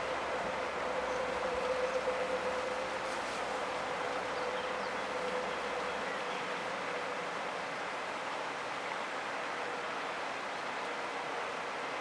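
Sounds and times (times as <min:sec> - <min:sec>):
faint steady hum: 0:00.0 - 0:12.0
rushing outdoor noise: 0:00.0 - 0:12.0.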